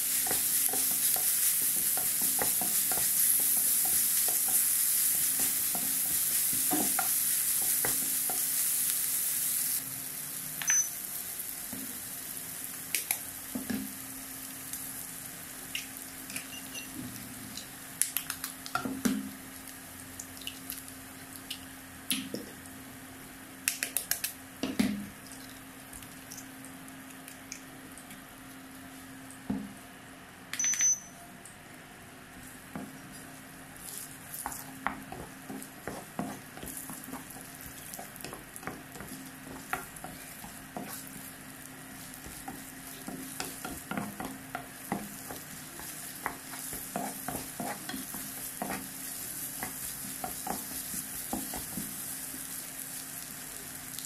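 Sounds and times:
onions sizzling in oil: 0.0s - 18.0s, 18.6s - 23.3s, 32.5s - 54.0s
spatula tapping and scraping: 0.2s - 8.5s, 33.9s - 41.3s, 42.0s - 52.0s.

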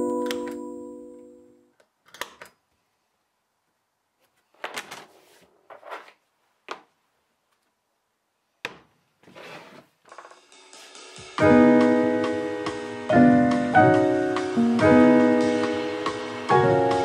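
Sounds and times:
keyboard chords music: 0.0s - 1.7s, 11.1s - 17.0s.

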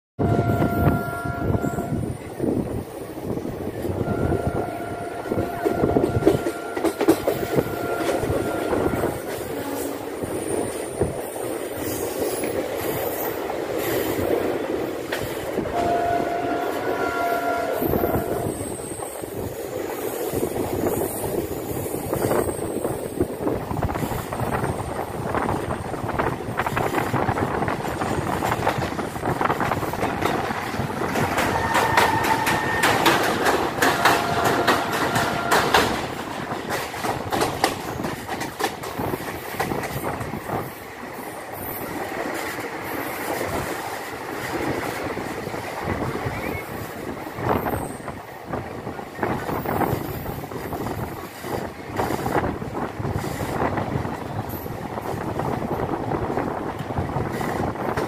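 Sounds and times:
train horn: 0.2s - 2.2s, 3.9s - 10.2s, 15.6s - 18.9s, 31.2s - 36.2s
train wheels clicking over rails: 5.2s - 15.8s, 17.6s - 58.0s.

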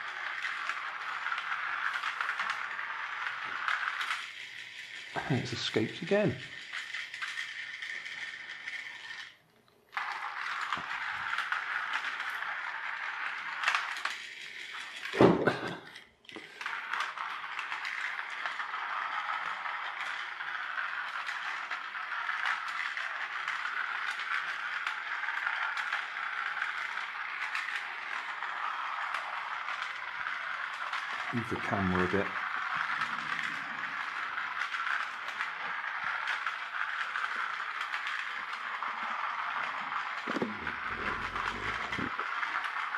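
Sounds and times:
toy helicopter motor whirring: 0.0s - 42.9s
loud thump: 15.2s - 15.5s.

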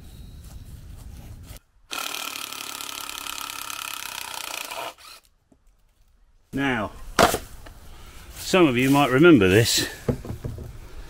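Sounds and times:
cordless drill motor whine: 1.9s - 5.3s.

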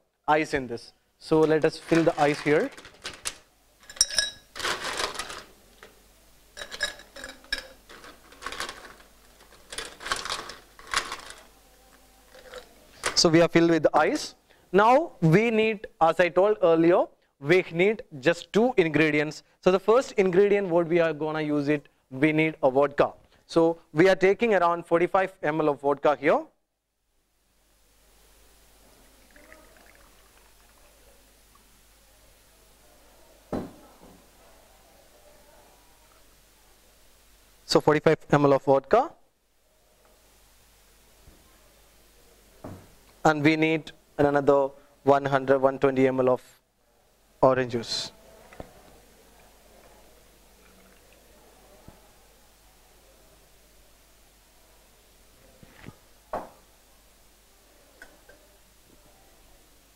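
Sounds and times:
ice cubes clinking: 1.4s - 5.5s, 6.6s - 11.4s
light glass clinks: 3.9s - 4.5s
liquid pouring into jigger: 28.9s - 31.6s, 50.5s - 51.3s.

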